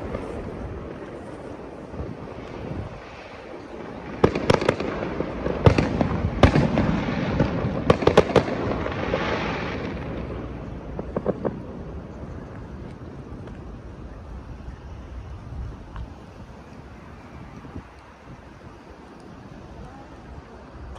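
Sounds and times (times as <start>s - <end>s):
fireworks bangs: 0.0s - 14.1s
fireworks crackling rumble: 0.0s - 20.9s.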